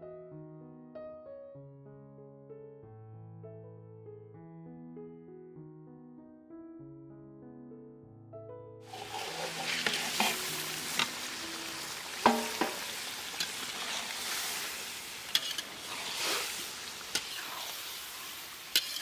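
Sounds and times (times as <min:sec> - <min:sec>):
fish sizzling in hot oil: 0:08.8 - 0:19.0
metal spatula scraping pan: 0:08.9 - 0:19.0.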